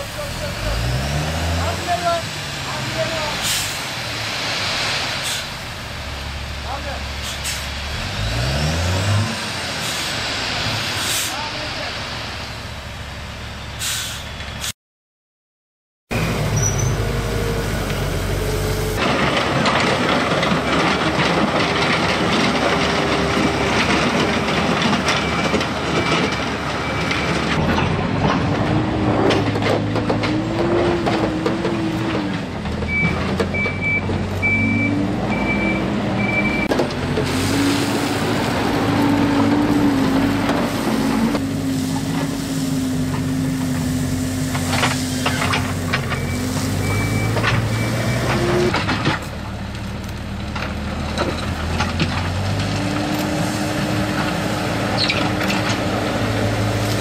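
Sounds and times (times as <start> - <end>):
diesel engine revving: 0.0 - 12.4, 16.1 - 57.0
reversing alarm beeps: 32.9 - 36.7, 46.1 - 48.3
gravel being pushed: 37.0 - 57.0.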